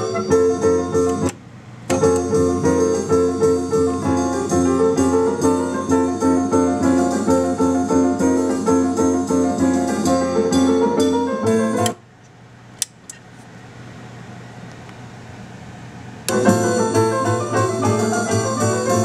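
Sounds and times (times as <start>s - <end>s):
instrumental piano music: 0.0s - 12.0s, 16.3s - 19.0s.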